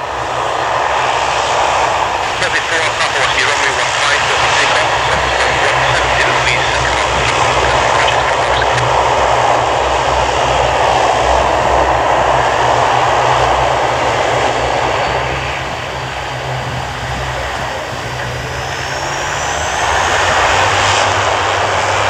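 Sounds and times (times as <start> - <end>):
jet engines running at low power: 0.0 - 22.0
faint high whine: 2.0 - 10.7.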